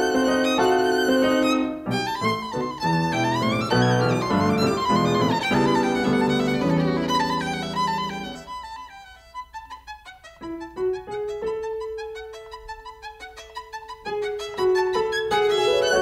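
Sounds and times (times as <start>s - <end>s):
violin playing classical music: 0.0s - 16.0s.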